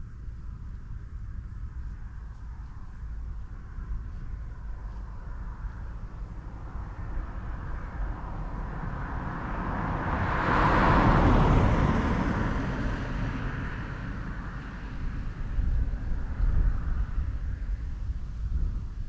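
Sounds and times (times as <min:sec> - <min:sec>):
wind rumble on microphone: 0:00.0 - 0:19.0
car passing by: 0:05.3 - 0:17.5.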